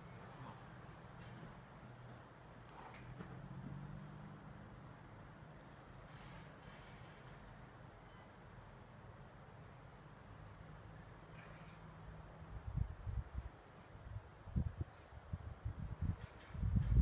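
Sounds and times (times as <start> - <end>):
low background noise: 0.0 - 17.0
faint high-pitched chirp: 8.0 - 8.4.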